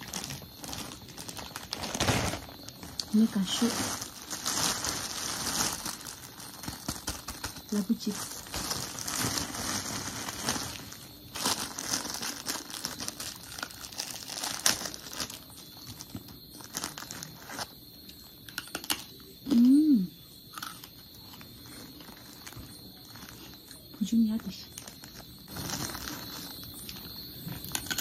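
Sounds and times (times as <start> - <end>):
plastic bag crinkling: 0.0 - 17.8, 20.6 - 28.0
person humming: 19.5 - 20.1.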